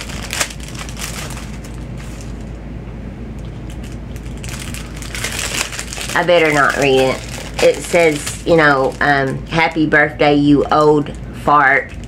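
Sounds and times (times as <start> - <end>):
card packaging rustling and crinkling: 0.0 - 2.6, 3.7 - 9.4
steady low hum: 0.0 - 12.0.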